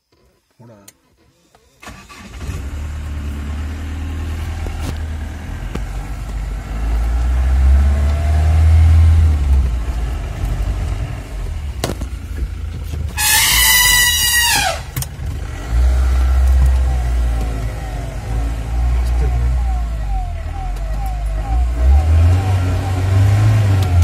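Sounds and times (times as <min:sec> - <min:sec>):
vehicle engine rumble: 0:01.5 - 0:24.0
elephant trumpeting: 0:13.2 - 0:15.0.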